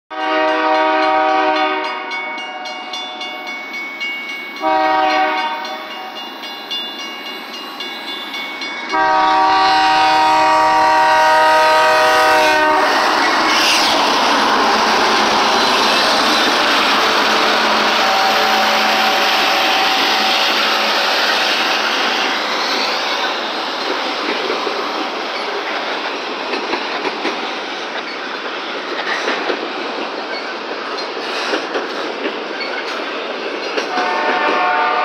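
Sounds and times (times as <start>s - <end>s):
locomotive air horn blasts: 0.1s - 2.1s, 4.6s - 5.8s, 8.9s - 13.7s, 17.0s - 21.2s, 33.9s - 35.0s
crossing bell ringing: 0.1s - 10.6s, 16.9s - 23.6s
train passing with wheel noise: 0.1s - 35.0s.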